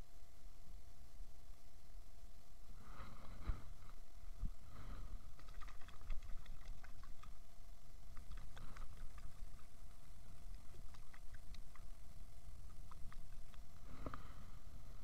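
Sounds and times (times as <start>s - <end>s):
fish splashing in water: 5.3s - 7.5s, 8.1s - 13.7s.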